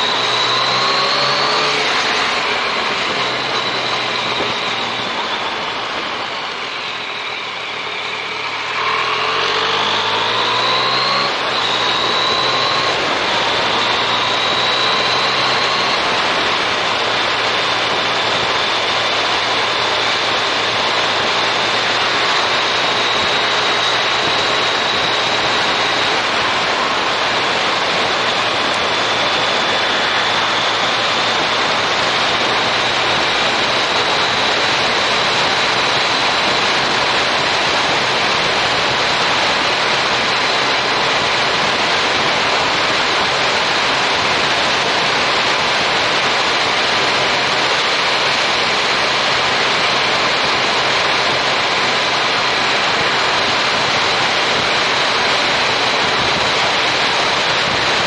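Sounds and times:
wind rushing over microphone: 0.0s - 58.0s
faint motorcycle engine hum: 11.2s - 58.0s.

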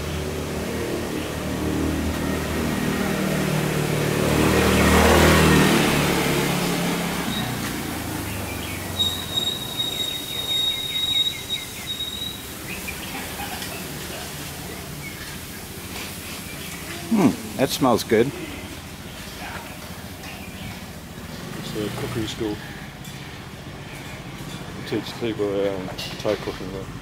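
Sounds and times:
motorbike engine passing: 0.0s - 27.0s
high steady whistle: 9.0s - 12.5s.

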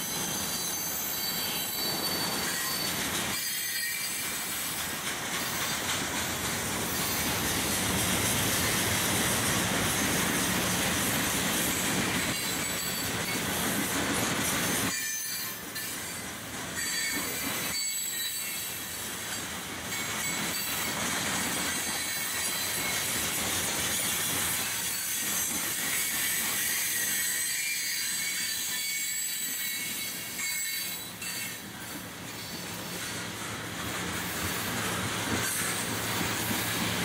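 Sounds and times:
high-pitched wheel squeal: 0.0s - 4.3s
freight cars rolling on rails: 0.0s - 37.0s.

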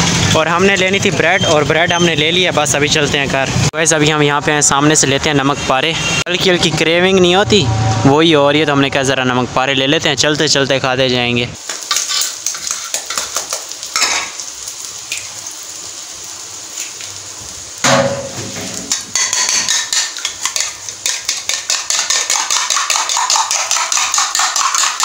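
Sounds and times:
egg tapped with spoon: 18.9s - 25.0s.

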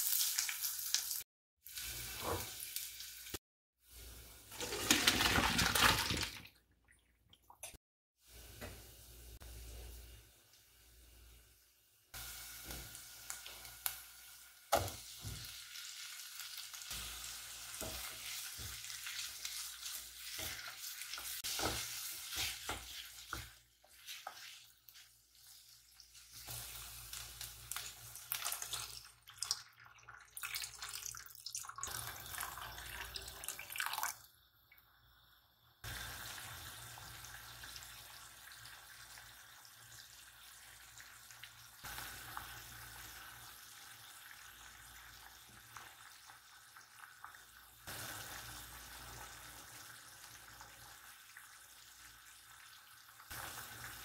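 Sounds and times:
onions sizzling in a saucepan: 0.0s - 4.7s, 8.2s - 29.3s, 35.1s - 54.0s
sauce boiling: 1.1s - 6.8s, 8.2s - 54.0s
water pouring: 4.4s - 7.8s, 27.7s - 34.3s.

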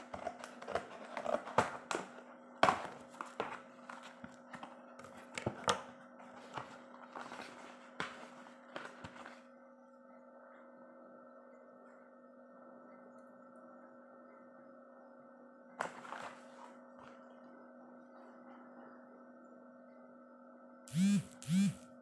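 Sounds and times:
steady electrical hum: 0.0s - 22.0s.

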